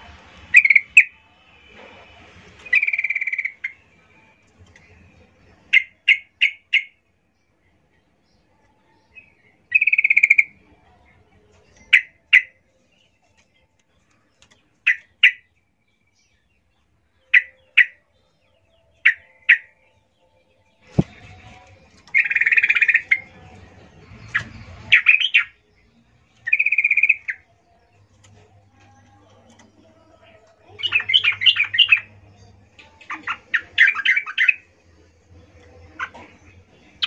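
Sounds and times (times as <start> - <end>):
bird chirping: 0.3 - 37.0
buzzy bird notes: 17.2 - 34.7.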